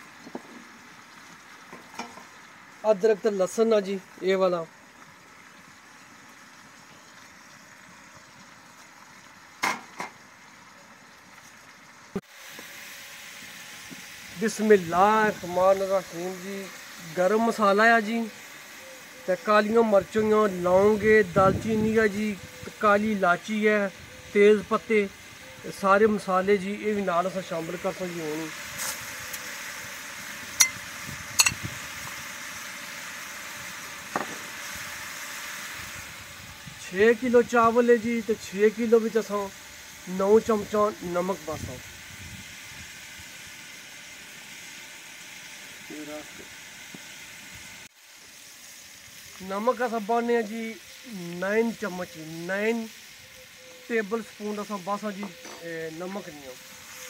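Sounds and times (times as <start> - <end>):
food sizzling in pot: 0.0 - 57.0
onions frying in oil: 0.0 - 57.0.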